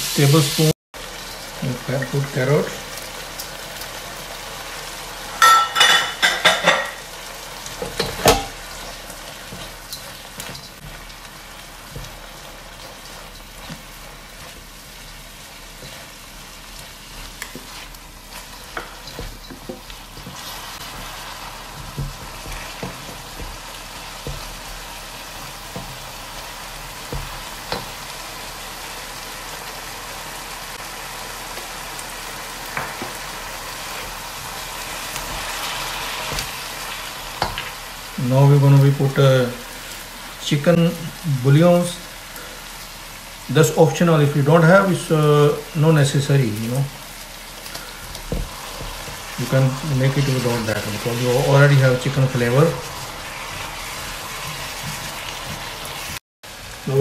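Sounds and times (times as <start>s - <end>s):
vegetables sizzling in a wok: 0.0s - 57.0s
spatula scraping wok: 5.4s - 26.3s.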